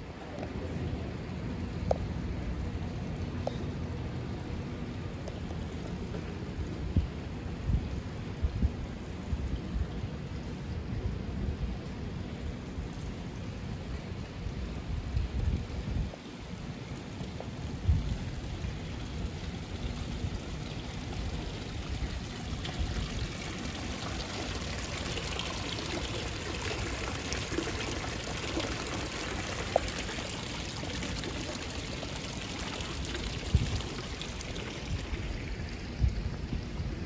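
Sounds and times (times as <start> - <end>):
fountain water splashing: 16.2 - 37.0.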